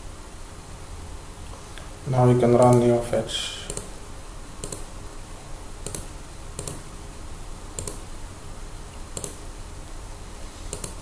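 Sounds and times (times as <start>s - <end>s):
slow keyboard typing clicks: 3.7s - 3.9s, 4.6s - 4.9s, 5.8s - 6.8s, 7.8s - 8.1s, 9.2s - 9.4s, 10.7s - 11.0s.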